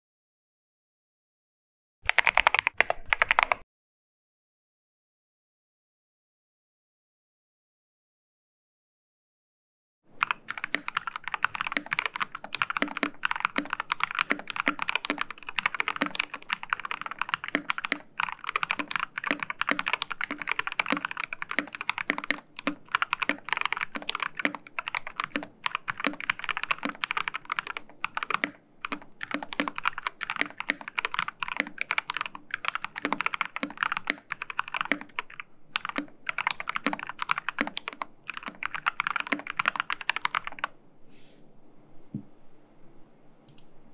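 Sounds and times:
mechanical keyboard typing: 0:02.1 - 0:03.6, 0:10.1 - 0:40.8.

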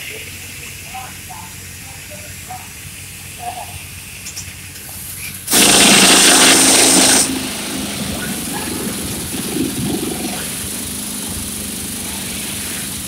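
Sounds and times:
air hissing: 0:02.7 - 0:13.0
pneumatic rock drill running: 0:05.2 - 0:13.0.

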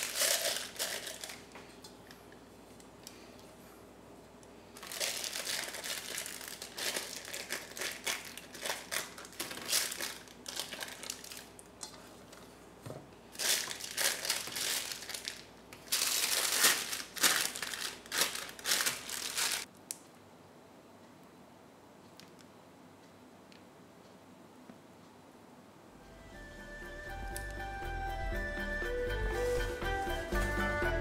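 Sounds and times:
plastic piping bag crinkling: 0:00.0 - 0:01.8, 0:04.7 - 0:12.4, 0:13.3 - 0:19.7.

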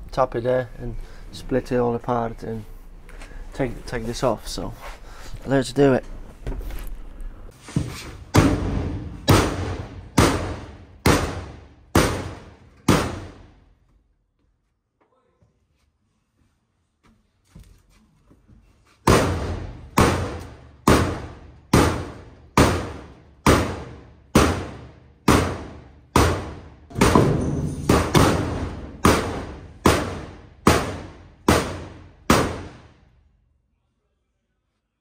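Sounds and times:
hammer striking steel panel: 0:08.3 - 0:13.5, 0:19.1 - 0:32.9.

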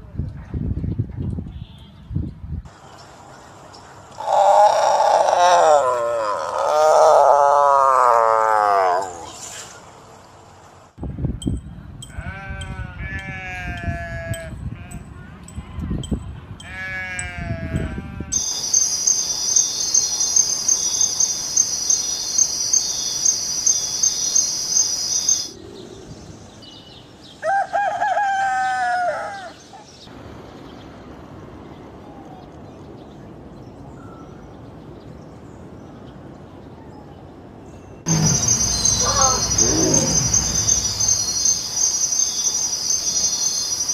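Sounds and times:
sheep bleat: 0:12.2 - 0:14.9, 0:16.7 - 0:18.4, 0:38.1 - 0:41.1
insect trill: 0:18.3 - 0:25.6, 0:38.1 - 0:43.9
rooster crowing: 0:27.4 - 0:29.6, 0:38.1 - 0:41.4.

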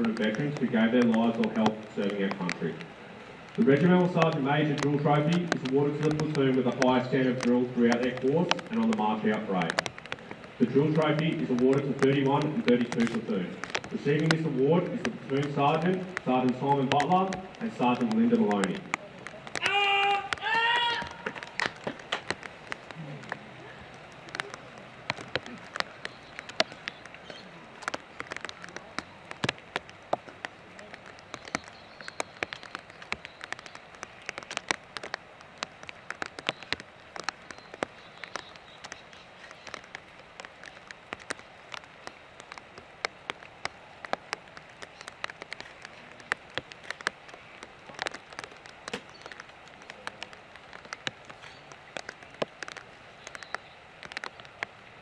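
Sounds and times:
raindrop taps: 0:00.0 - 0:55.0
steady rain hiss: 0:00.0 - 0:55.0.

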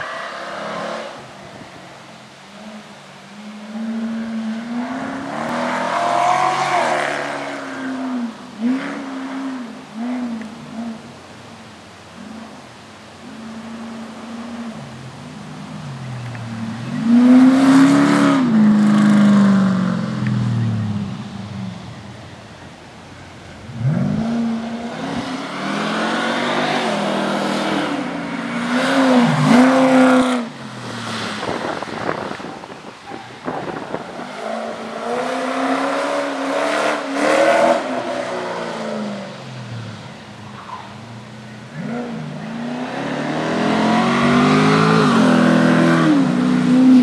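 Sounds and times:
car engine revving: 0:23.6 - 0:47.0.

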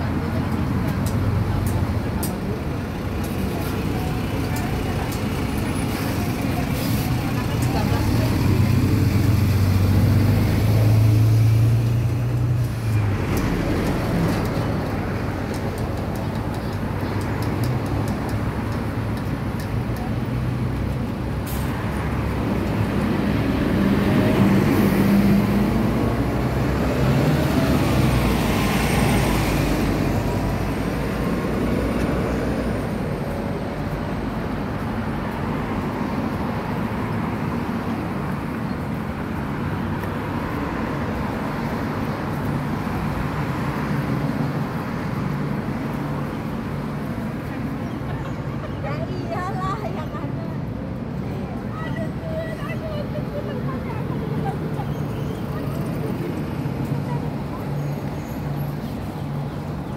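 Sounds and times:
road traffic: 0:00.0 - 0:59.9.

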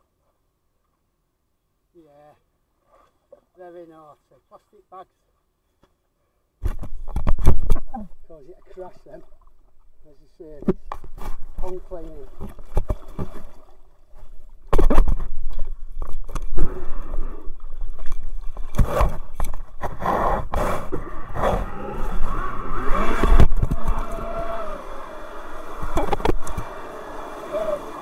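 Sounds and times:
scraping against camera: 0:10.6 - 0:16.8.

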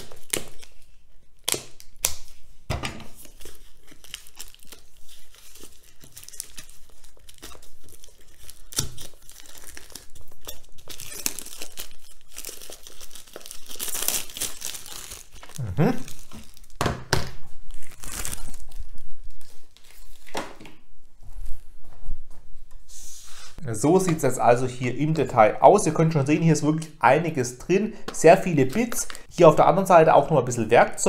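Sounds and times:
plastic film crinkling and tearing: 0:00.0 - 0:02.5, 0:03.1 - 0:20.4.

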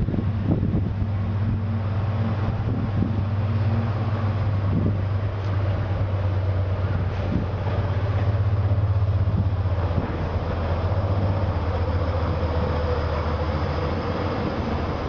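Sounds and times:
diesel locomotive engine drone: 0:00.0 - 0:15.0
rumble of wagons rolling past: 0:00.0 - 0:15.0.

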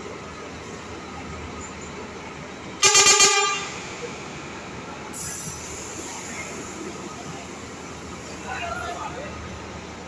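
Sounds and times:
bus horn blast: 0:02.8 - 0:03.9.

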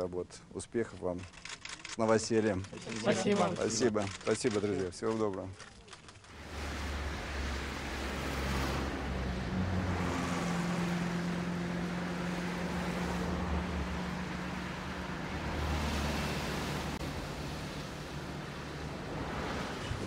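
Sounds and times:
car engine humming: 0:06.4 - 0:20.0
rushing wind-like noise: 0:15.4 - 0:20.0.

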